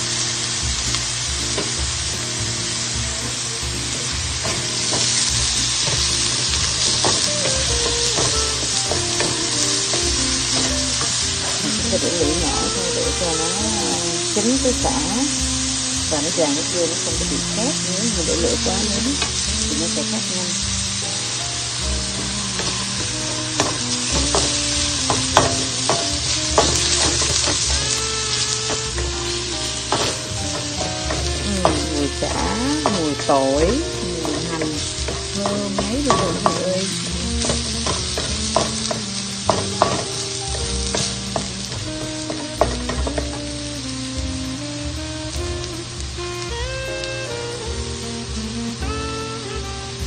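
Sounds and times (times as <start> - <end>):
lemongrass sizzling in oil: 0.0 - 50.0
wooden spatula scraping a pan: 3.2 - 20.3, 21.9 - 43.9.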